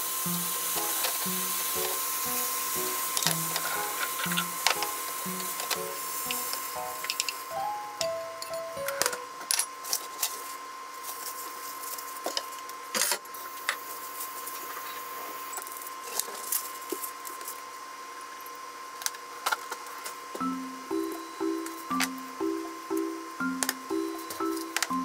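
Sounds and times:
background music: 0.0s - 9.4s, 20.4s - 25.0s
faint steady high tone: 0.0s - 9.4s, 20.4s - 25.0s.

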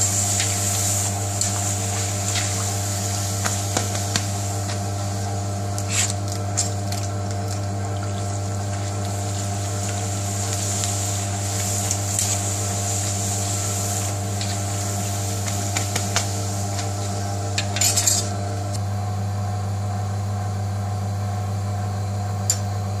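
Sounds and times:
oil sizzling: 0.0s - 18.8s
metal spatula scraping pan: 17.6s - 18.3s.

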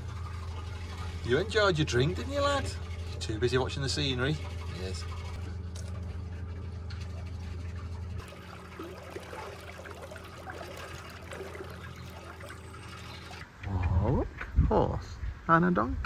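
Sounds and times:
water churning past boat hull: 6.0s - 13.5s.

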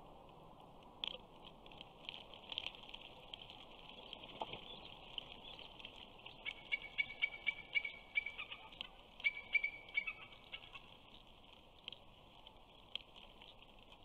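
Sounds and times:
eagle high piping calls: 6.4s - 10.8s.

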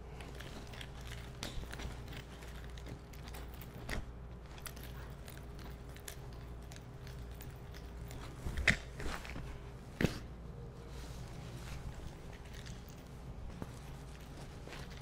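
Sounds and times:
room hum: 0.0s - 15.0s
nunchaku clicks and knocks: 0.2s - 9.4s.

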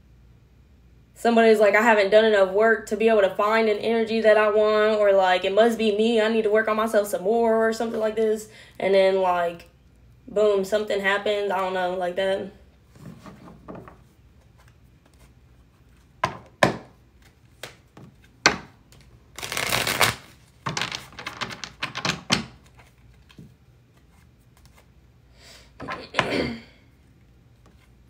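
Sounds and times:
cards rustling while shuffled: 17.1s - 24.9s.

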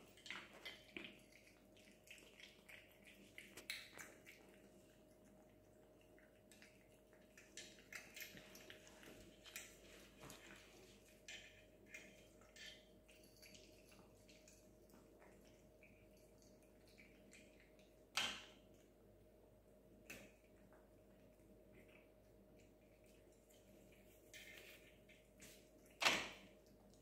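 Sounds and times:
cats crunching dry food: 0.0s - 17.8s
faint steady hum: 0.0s - 27.0s.

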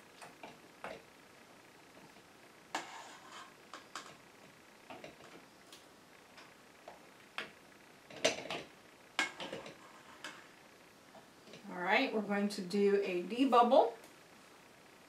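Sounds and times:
metal ladle scraping stockpot: 2.7s - 4.1s.

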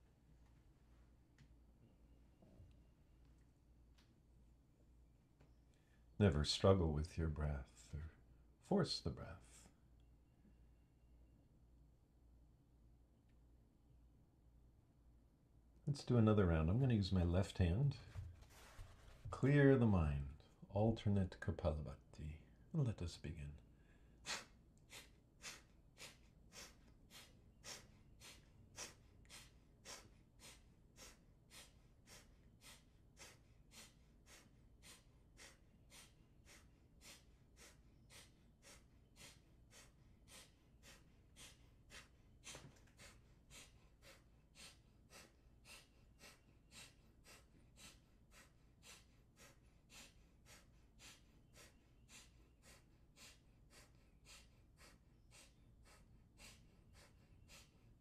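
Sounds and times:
forceful nasal exhalations: 24.1s - 57.8s.

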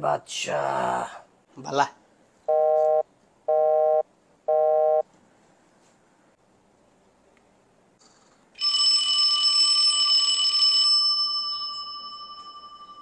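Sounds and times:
old-style phone bell ringing: 8.6s - 13.0s.

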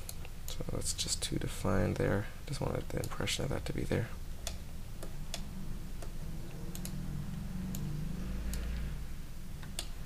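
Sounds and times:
steady low hum: 0.0s - 10.0s
mouse and keyboard clicks: 6.7s - 7.0s.

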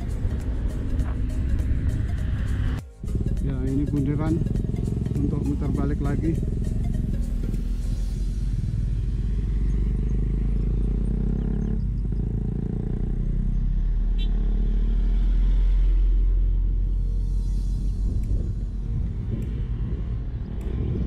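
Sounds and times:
road and traffic engine noise: 0.0s - 21.0s
wind rumble on microphone: 15.8s - 21.0s.

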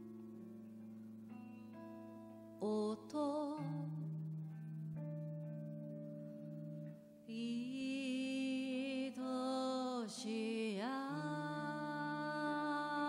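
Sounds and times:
soft sustained chords: 0.0s - 13.0s
woman singing slow melody: 2.4s - 5.1s, 7.2s - 13.0s.

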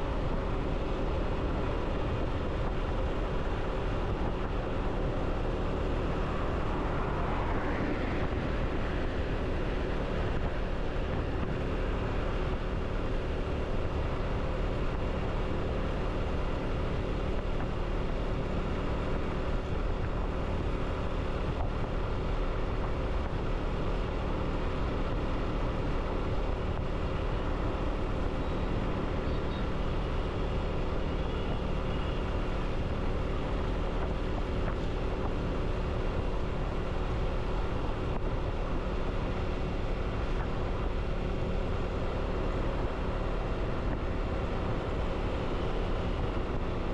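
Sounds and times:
road and wind noise: 0.0s - 46.9s
vehicle engine running: 0.0s - 46.9s.

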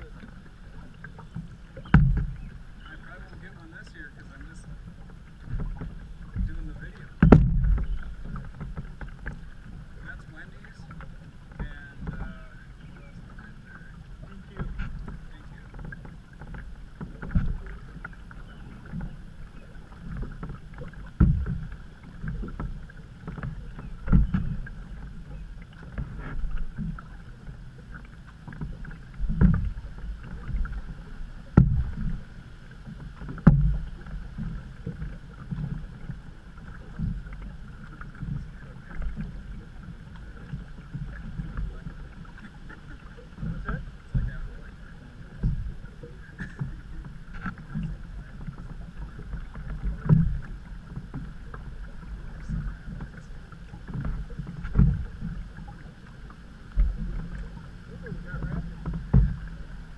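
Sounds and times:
canoe paddle strokes: 0.0s - 59.9s
water sloshing against hull: 0.0s - 59.9s
sharp knocks: 7.2s - 7.9s.

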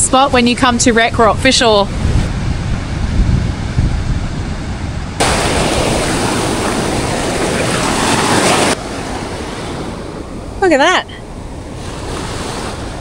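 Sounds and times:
surf breaking on rocks: 5.2s - 10.3s.

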